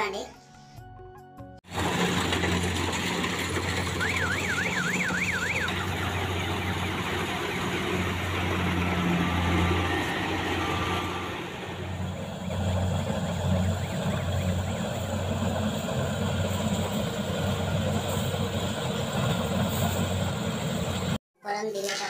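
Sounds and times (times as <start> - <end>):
combine harvester engine hum: 1.7 - 21.2
warbling siren-like tone: 3.5 - 18.7.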